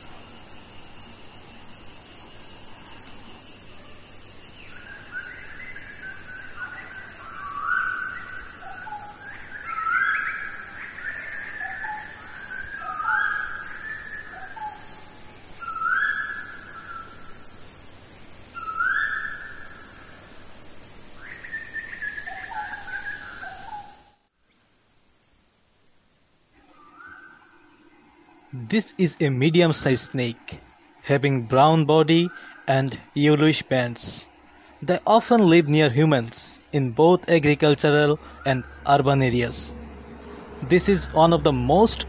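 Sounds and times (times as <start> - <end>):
high-pitched insect drone: 0.0 - 24.5, 26.4 - 42.0
bird whistled call: 15.6 - 17.1.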